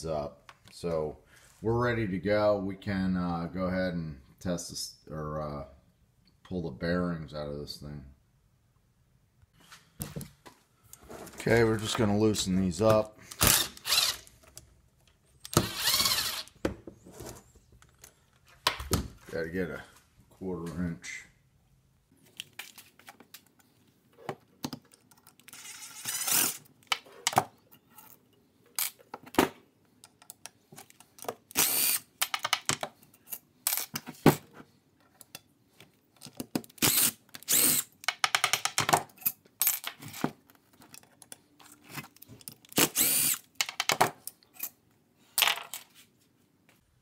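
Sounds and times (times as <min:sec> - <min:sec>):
impact driver running: 0:13.4 - 0:14.2, 0:15.5 - 0:16.5, 0:42.8 - 0:43.4.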